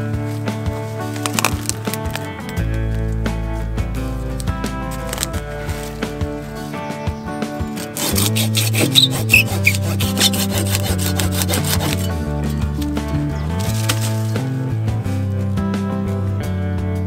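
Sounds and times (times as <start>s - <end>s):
hand saw cutting log: 7.7s - 14.3s.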